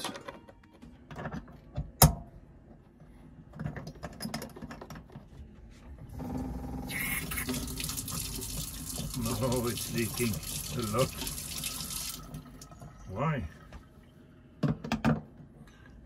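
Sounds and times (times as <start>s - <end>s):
water running into metal sink: 6.9s - 12.8s.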